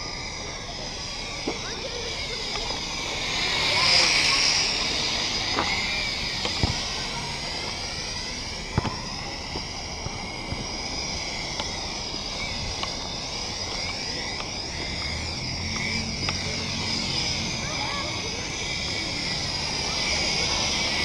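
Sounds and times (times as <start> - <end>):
drone propellers whining: 0.0 - 21.0
sharp clicks: 8.7 - 16.5.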